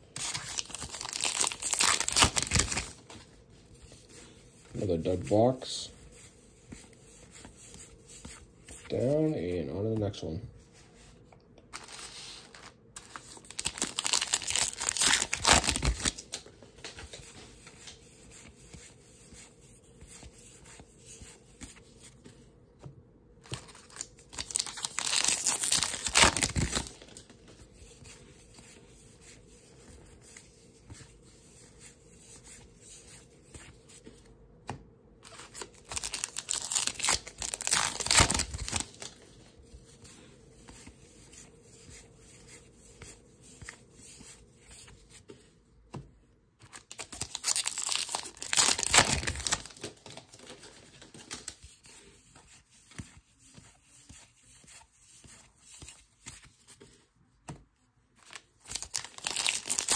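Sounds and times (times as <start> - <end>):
cards shuffling: 0.1 - 9.2, 11.7 - 22.5, 23.4 - 31.7, 35.2 - 39.4, 46.6 - 57.0, 58.2 - 59.9
card pack wrappers tearing: 0.2 - 3.0, 11.8 - 16.4, 23.5 - 27.2, 35.3 - 39.2, 46.8 - 51.5, 58.3 - 59.9.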